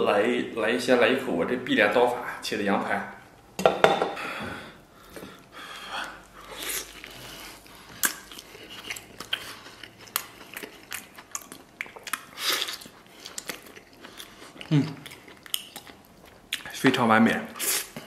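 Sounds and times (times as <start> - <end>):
man chewing meat: 4.8 - 16.8
biting and mouth clicks: 6.2 - 16.8.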